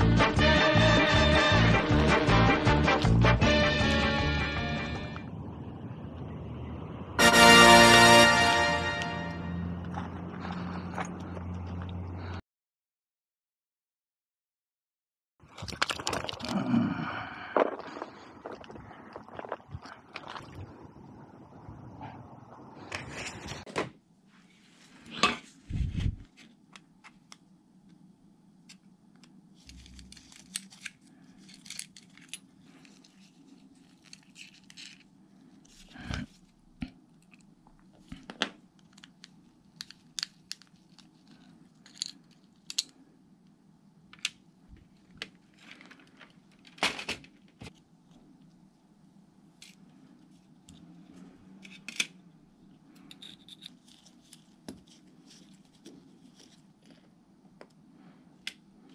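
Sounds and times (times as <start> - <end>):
steady low hum: 4.1 - 7.9, 16.6 - 46.6.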